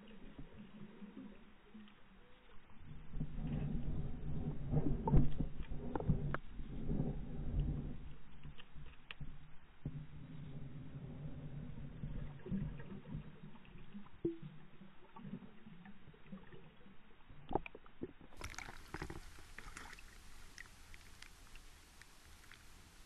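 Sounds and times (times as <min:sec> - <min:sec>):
muffled underwater rumbling: 0:00.0 - 0:23.0
water splashing against boat: 0:18.3 - 0:23.0.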